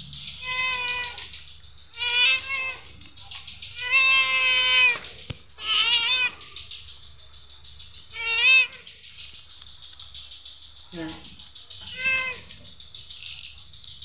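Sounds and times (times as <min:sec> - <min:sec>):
cat meowing: 0:00.4 - 0:03.0, 0:03.7 - 0:06.5, 0:08.1 - 0:08.9, 0:11.8 - 0:12.7.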